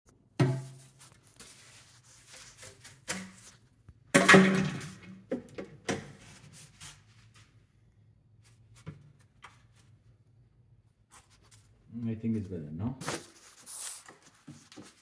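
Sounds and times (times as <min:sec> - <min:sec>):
plastic pipe knocking and scraping: 0:00.3 - 0:01.6, 0:02.2 - 0:06.2.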